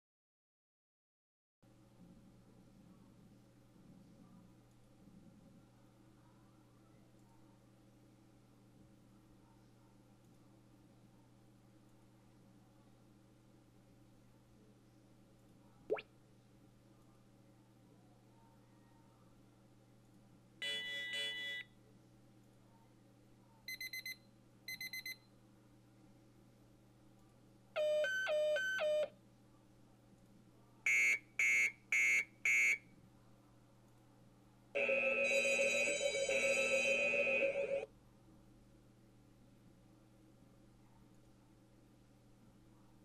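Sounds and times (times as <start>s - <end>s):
quick beeps: 23.7s - 25.2s.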